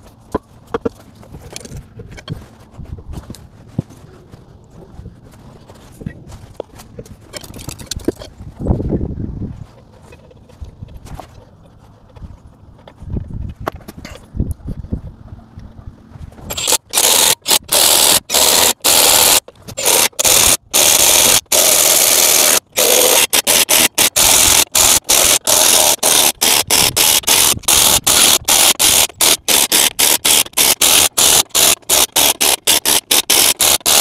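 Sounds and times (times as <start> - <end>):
impact driver bursts: 16.5 - 34.0.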